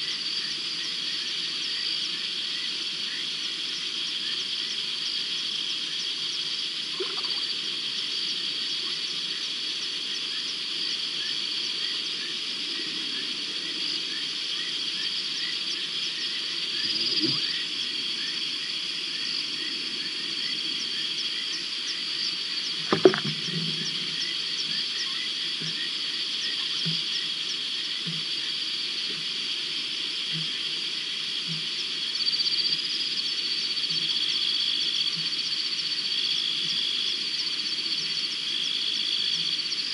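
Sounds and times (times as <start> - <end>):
frogs and insects trilling: 0.0 - 39.9
sharp thump: 22.9 - 23.4.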